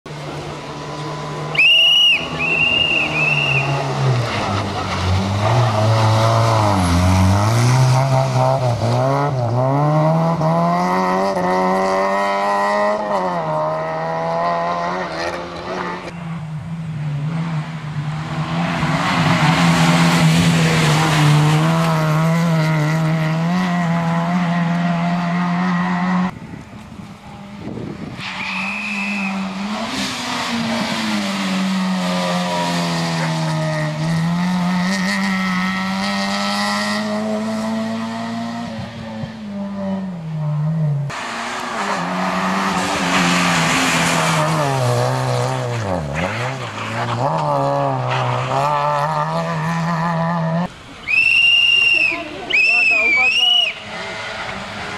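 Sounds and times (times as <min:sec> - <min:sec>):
rally car engine revving: 0:00.1 - 0:26.4, 0:27.0 - 0:51.0, 0:52.6 - 0:54.9
shrill whistle: 0:01.5 - 0:03.7, 0:28.4 - 0:29.4, 0:51.0 - 0:53.8.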